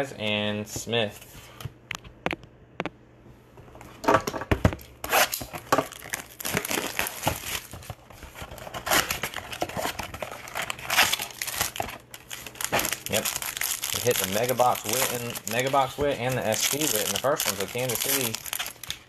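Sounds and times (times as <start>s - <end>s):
wrappers crinkling and tearing: 5.1s - 19.0s.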